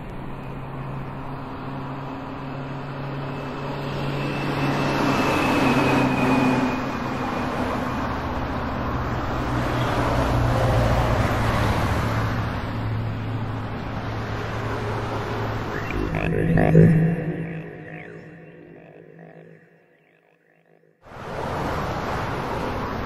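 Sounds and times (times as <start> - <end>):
rush of noise: 15.7 - 20.3
steady low hum: 15.7 - 20.5.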